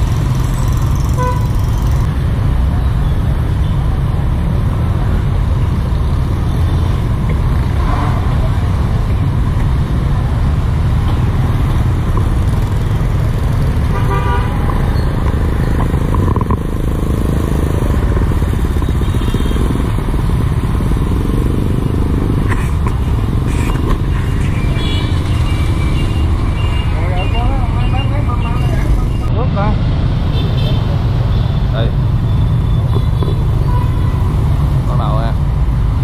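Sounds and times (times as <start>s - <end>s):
vehicle low rumble: 0.0s - 36.0s
horn tooting: 1.1s - 1.6s, 13.8s - 14.8s, 23.4s - 29.3s, 32.5s - 34.4s.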